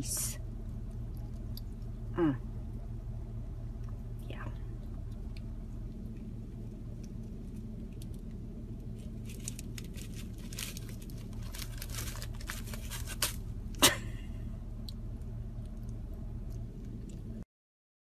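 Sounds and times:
plastic bag crinkling: 7.2s - 13.7s.

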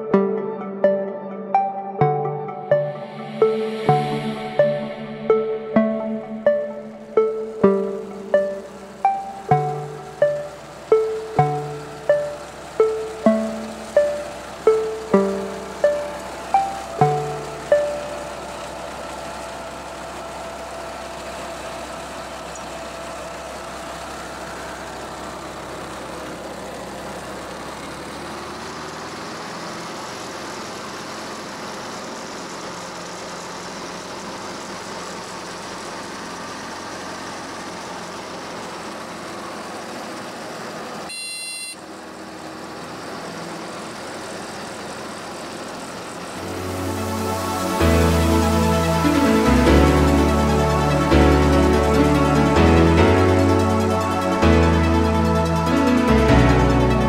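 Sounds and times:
brief high tone: 0.0s - 23.1s, 41.1s - 41.8s
engine droning: 0.0s - 57.0s.

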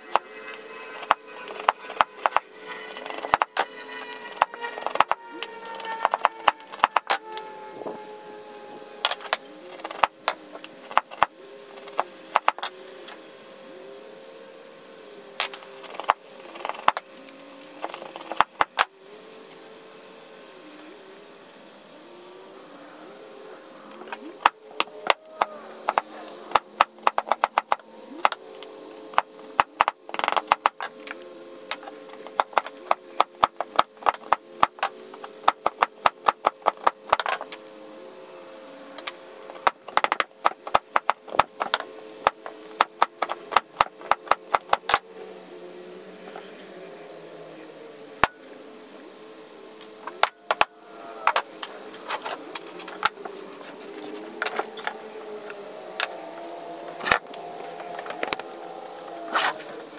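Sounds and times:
hatchet splitting wood: 1.0s - 7.3s, 9.0s - 12.8s, 17.8s - 19.0s, 24.1s - 37.7s, 39.0s - 45.1s.

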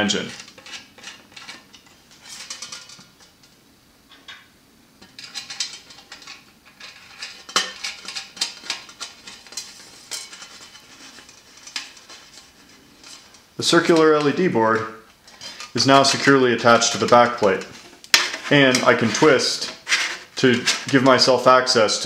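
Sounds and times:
lock nut clicking and scraping on metal: 0.1s - 3.5s, 4.1s - 21.3s.

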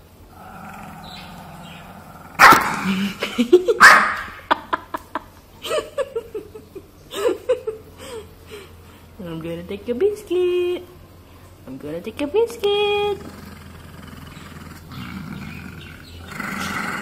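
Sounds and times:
dog growling: 0.3s - 3.2s, 13.0s - 17.0s
dog snarling barks: 0.4s - 3.2s, 3.8s - 4.4s, 13.2s - 17.0s.

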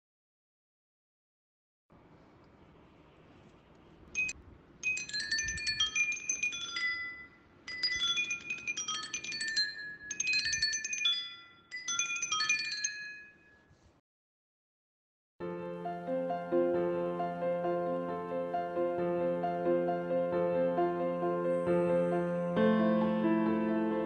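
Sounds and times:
faint low hum: 1.9s - 4.8s
tinkling chime music: 4.2s - 13.8s.

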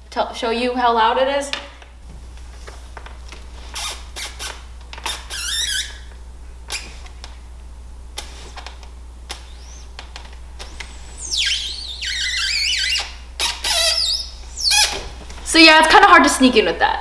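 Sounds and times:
window sash squealing: 3.6s - 6.1s, 9.3s - 10.0s, 10.6s - 15.3s.

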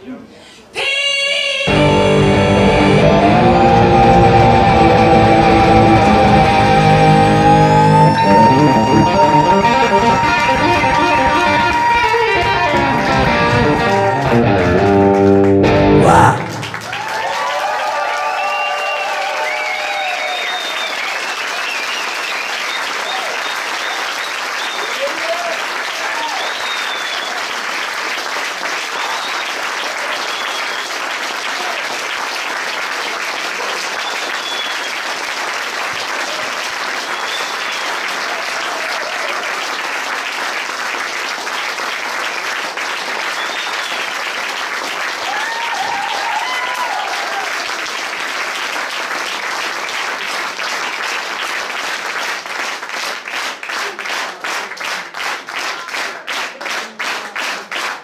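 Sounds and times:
crowd cheering and calling: 1.7s - 27.3s, 37.1s - 39.6s, 45.1s - 47.9s
audience applauding: 1.7s - 58.0s
rhythmic clapping in unison: 3.0s - 17.4s, 20.6s - 46.3s, 47.0s - 58.0s.

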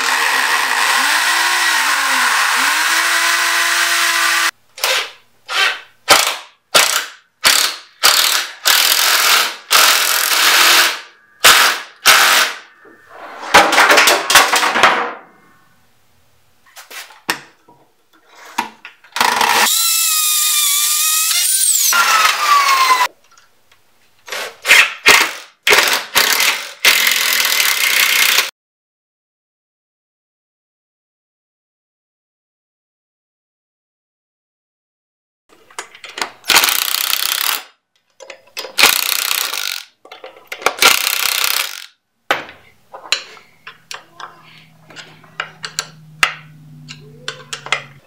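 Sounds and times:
cordless drill driving screws: 0.0s - 4.5s, 5.5s - 12.6s, 19.2s - 23.1s, 36.5s - 37.6s, 38.8s - 39.9s, 40.8s - 41.9s.

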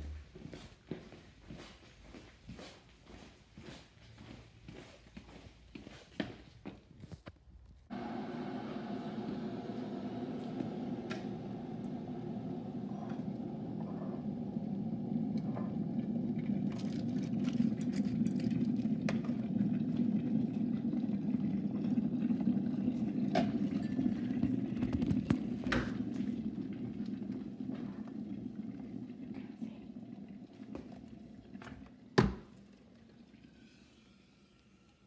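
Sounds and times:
electric kettle heating water: 7.9s - 33.5s.

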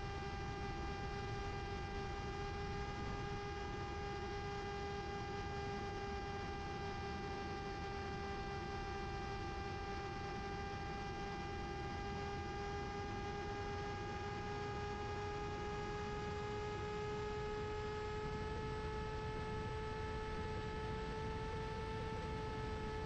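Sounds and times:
electric propeller drone: 0.0s - 23.0s.

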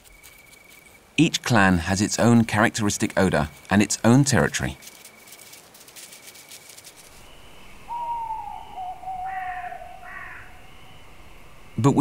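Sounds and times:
owl hooting: 7.1s - 11.8s.

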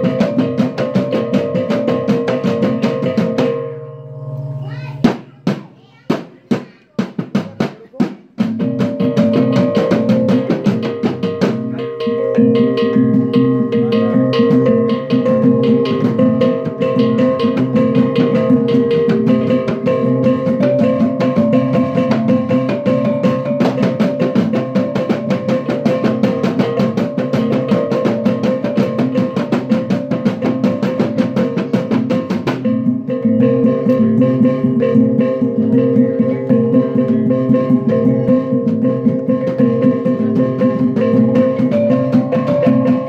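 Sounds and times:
drum beat: 0.0s - 3.9s, 4.6s - 43.0s
ringing tuned gongs: 3.4s - 4.7s.

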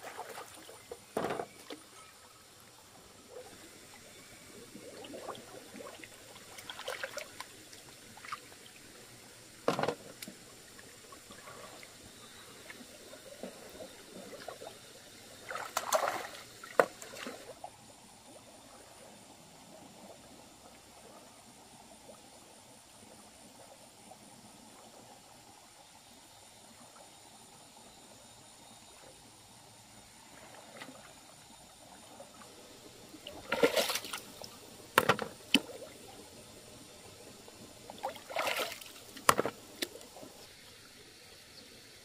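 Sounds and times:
water splashing and sloshing: 0.0s - 2.0s, 4.6s - 17.9s, 30.3s - 36.3s, 37.7s - 40.7s.

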